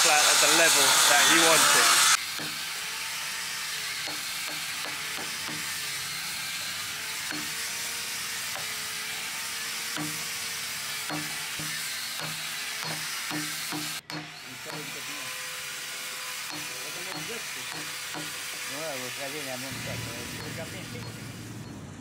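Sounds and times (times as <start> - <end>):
hammer knocking chisel into wood: 4.0 - 5.7, 10.0 - 10.2, 11.1 - 14.9, 16.5 - 18.4
steady hiss: 16.5 - 21.5.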